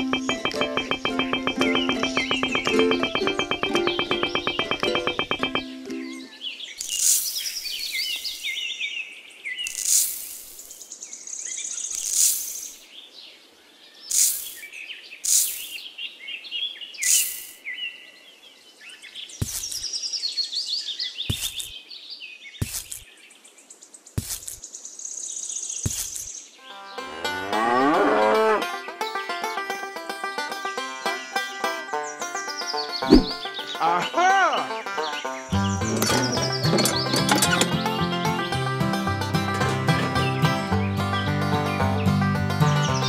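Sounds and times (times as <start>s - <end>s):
birds chirping: 0.0s - 10.0s, 10.6s - 29.1s, 31.0s - 43.0s
sand pouring from plastic bucket: 9.7s - 10.7s, 12.0s - 12.6s, 14.1s - 14.6s, 15.3s - 15.7s
soft taps on sand: 19.4s - 19.9s, 21.3s - 21.7s, 24.2s - 24.6s.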